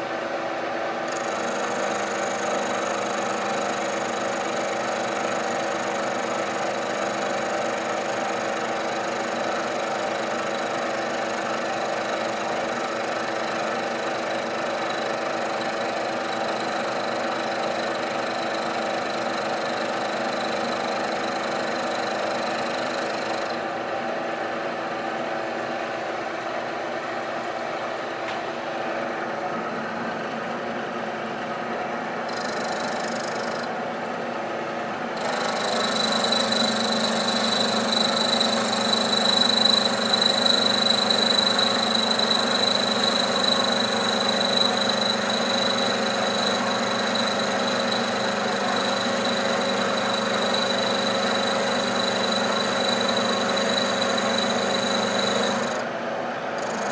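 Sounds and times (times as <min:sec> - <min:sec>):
milling machine cutting metal: 0:35.2 - 0:55.9, 0:56.6 - 0:56.9.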